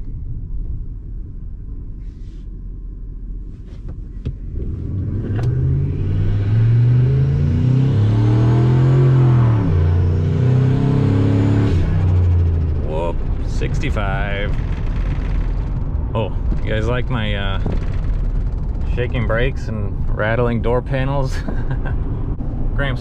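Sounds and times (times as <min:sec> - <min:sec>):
engine revving through gear shifts: 0:04.6 - 0:19.9.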